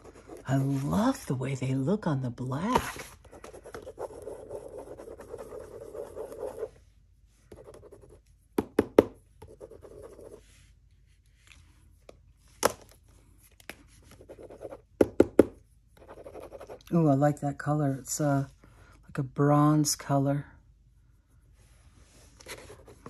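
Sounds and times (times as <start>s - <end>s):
gel pen scribbling on paper: 3.4s - 6.7s.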